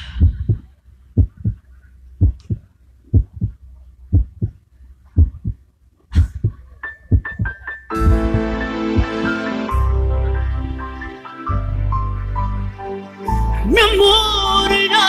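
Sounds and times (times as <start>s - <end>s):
heartbeat thumps over loudspeakers: 0.0s - 9.3s.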